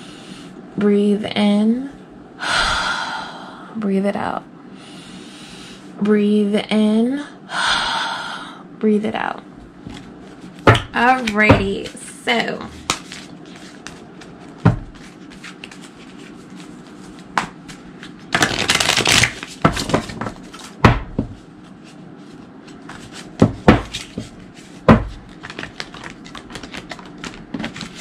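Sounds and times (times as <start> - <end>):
cards being shuffled: 9.8 - 20.8, 21.6 - 28.0.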